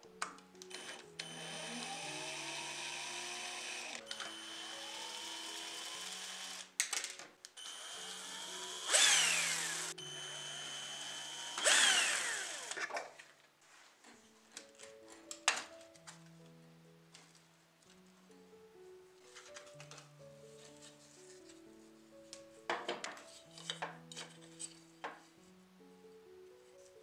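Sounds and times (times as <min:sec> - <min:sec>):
soft background music: 0:00.0 - 0:27.0
electric screwdriver whirring: 0:00.7 - 0:06.8, 0:07.6 - 0:12.9.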